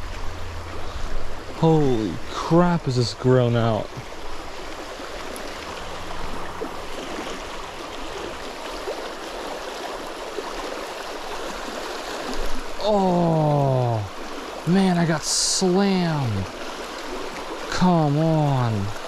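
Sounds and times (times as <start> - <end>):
creek water rushing over rocks: 0.0 - 19.0
man exclaiming: 12.8 - 14.1.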